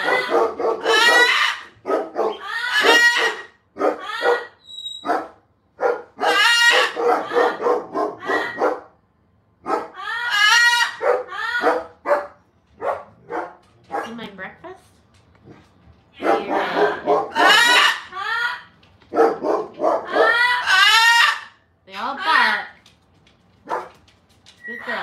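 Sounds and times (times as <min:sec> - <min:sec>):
pet animal calling: 0:00.0 - 0:05.3, 0:06.2 - 0:08.7, 0:09.8 - 0:11.9, 0:16.2 - 0:21.6.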